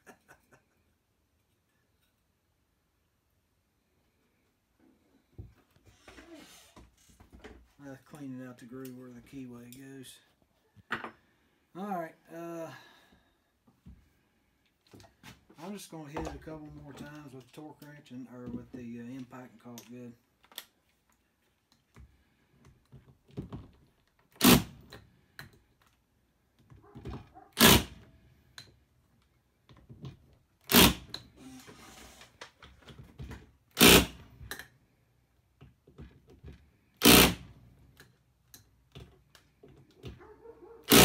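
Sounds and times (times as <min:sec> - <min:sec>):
impact wrench bursts: 0:24.3 - 0:24.9, 0:27.6 - 0:28.1, 0:30.6 - 0:31.2, 0:33.7 - 0:34.2, 0:37.0 - 0:37.6.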